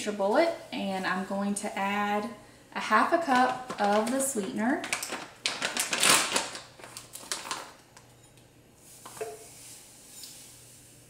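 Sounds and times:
plastic pouch crinkling: 3.3 - 7.8
granules pouring hiss: 8.8 - 11.0.

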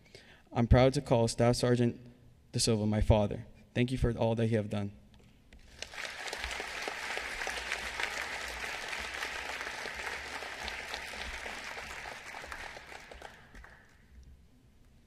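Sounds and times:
audience applauding: 5.6 - 14.2.

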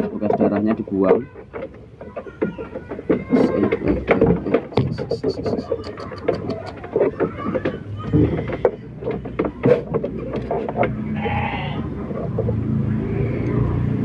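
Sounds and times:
clicks and rustles of handling: 0.0 - 12.8
sheep bleating: 11.1 - 12.0.

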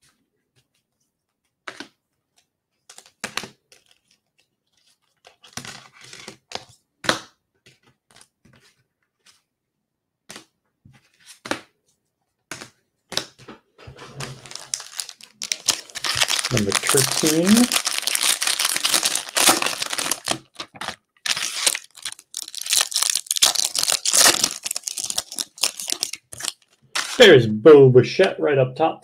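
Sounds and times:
plastic wrapping crinkling: 14.0 - 27.2.

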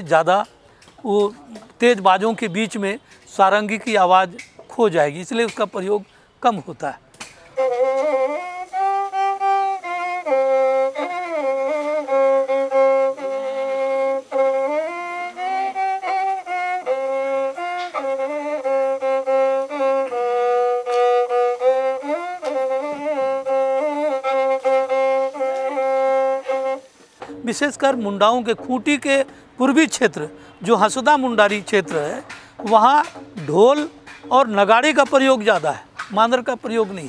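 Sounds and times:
bowed fiddle melody: 7.4 - 37.0.

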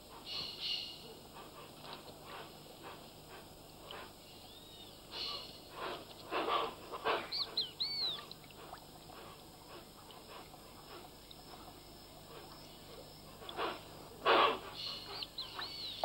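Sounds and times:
harsh hissing bird calls: 0.1 - 11.0, 13.4 - 16.0
thin whistled bird chirps: 0.3 - 1.0, 4.4 - 5.4, 7.2 - 8.3, 14.8 - 16.0.

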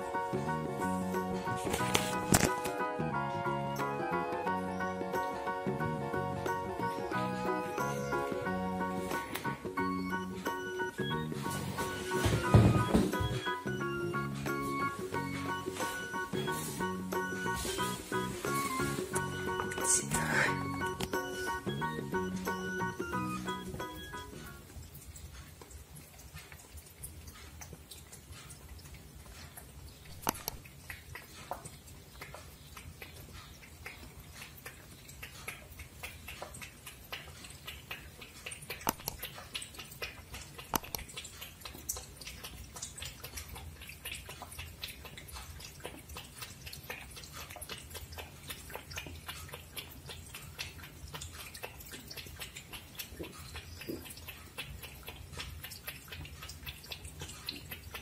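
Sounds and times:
cat eating wet clicks: 24.6 - 58.0
sharp ticks: 24.8 - 58.0.

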